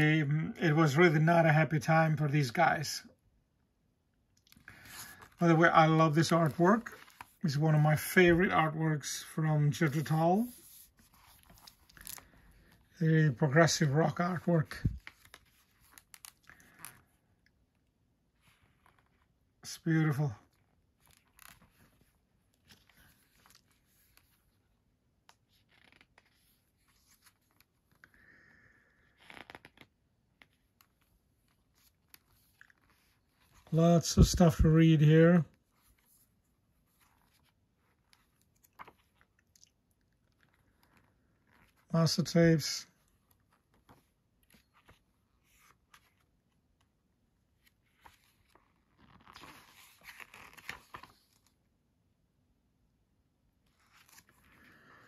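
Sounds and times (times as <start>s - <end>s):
paper pages rustling: 4.5s - 8.5s, 9.7s - 13.0s, 13.7s - 17.2s, 20.5s - 28.1s, 29.2s - 34.7s, 35.5s - 41.9s, 42.9s - 46.9s, 47.5s - 51.6s, 53.7s - 55.0s.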